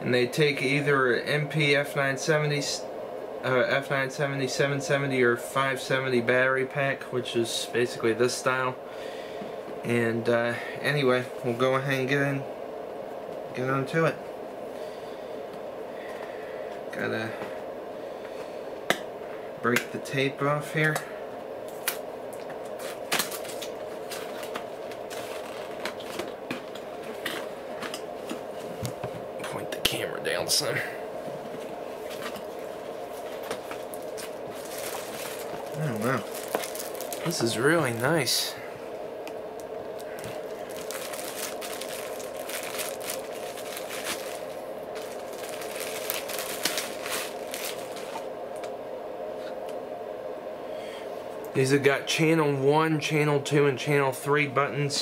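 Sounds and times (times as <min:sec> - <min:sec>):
steady hum: 0:00.0 - 0:55.0
packing tape pulled off box: 0:22.7 - 0:26.3, 0:40.2 - 0:48.3
plastic bag crinkling: 0:22.7 - 0:27.5, 0:32.1 - 0:38.5, 0:39.6 - 0:48.3.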